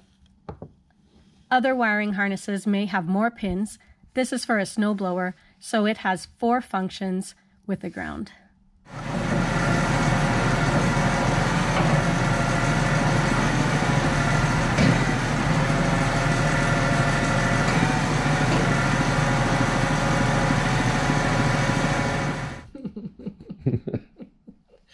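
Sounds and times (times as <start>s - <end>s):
diesel engine running: 8.9s - 22.7s.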